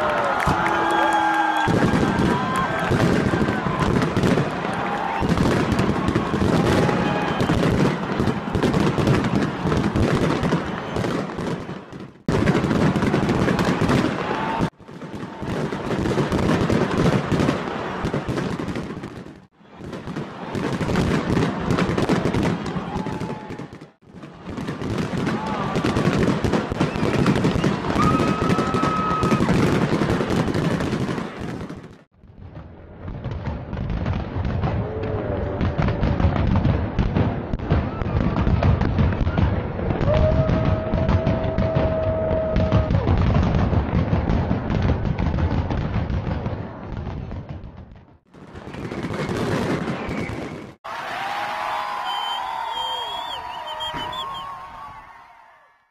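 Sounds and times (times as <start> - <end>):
fireworks popping and crackling: 0.0 - 50.8, 51.9 - 54.9
firework whistle: 0.2 - 11.5, 25.2 - 29.8, 48.7 - 50.8, 51.8 - 55.0.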